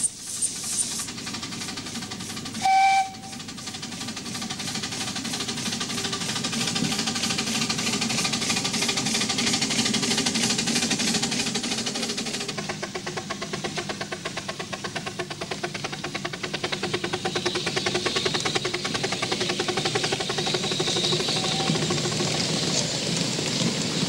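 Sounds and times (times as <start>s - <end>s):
steam locomotive chuffing: 0.0s - 24.0s.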